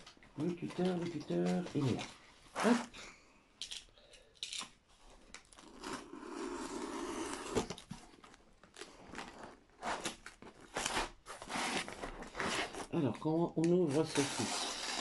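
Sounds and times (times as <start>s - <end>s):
box cutter slicing tape: 6.2s - 7.8s, 14.1s - 15.0s.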